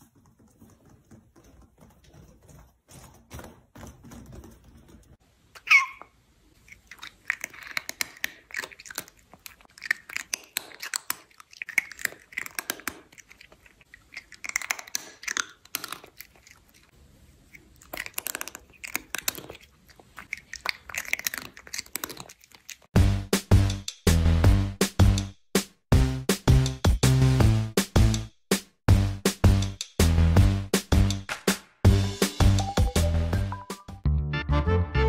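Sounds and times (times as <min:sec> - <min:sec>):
cat chewing: 0:06.4 - 0:23.0
music with heavy beat: 0:23.0 - 0:33.9.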